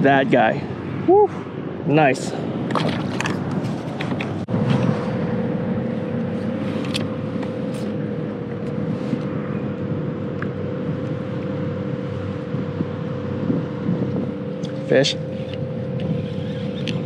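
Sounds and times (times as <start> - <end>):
low mechanical hum: 0.0 - 17.0
constant mid-pitched tone: 4.4 - 17.0.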